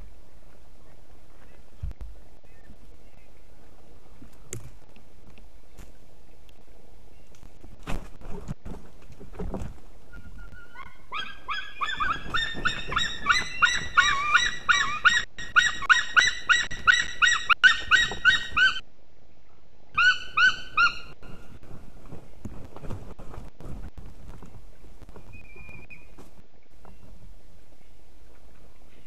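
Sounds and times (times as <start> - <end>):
eagles yelping calls: 10.1 - 18.8, 20.0 - 21.2
knocks and rustling in nest: 21.6 - 27.1.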